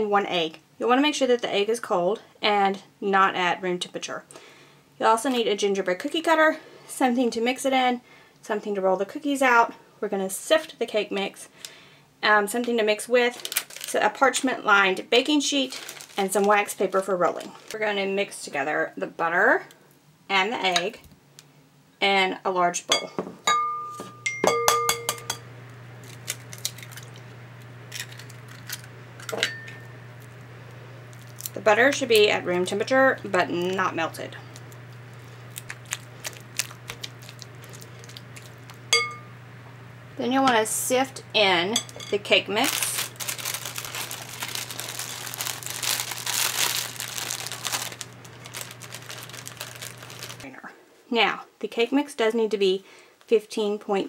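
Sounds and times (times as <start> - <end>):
plastic bag crinkling: 13.2 - 17.9, 26.0 - 29.4, 30.1 - 38.9, 41.8 - 50.5
dishes clinking: 22.9 - 25.5, 29.3 - 29.9, 38.9 - 39.3, 41.7 - 42.2.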